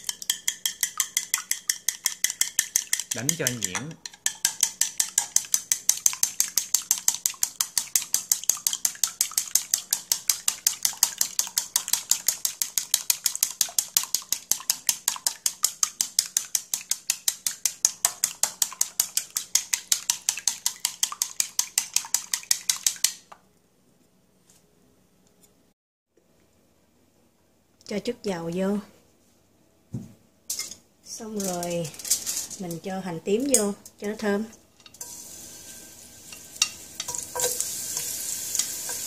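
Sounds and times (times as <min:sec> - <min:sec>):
chopsticks beating eggs in a bowl: 0:00.0 - 0:23.2, 0:36.2 - 0:39.0.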